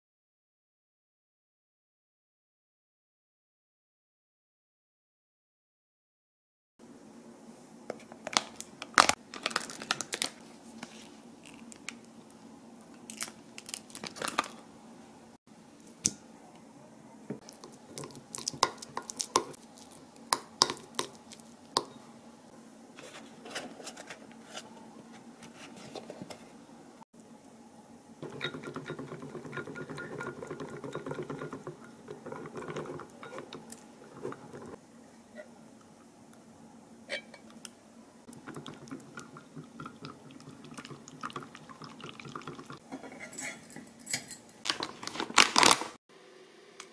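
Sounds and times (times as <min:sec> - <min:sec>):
spoon scraping glass bowl: 0:28.2 - 0:34.8, 0:42.4 - 0:44.4.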